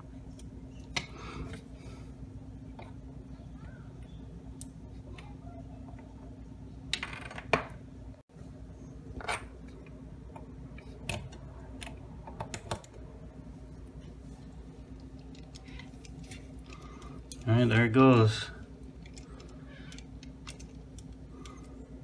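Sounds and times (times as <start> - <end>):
steady low hum: 0.0 - 22.0.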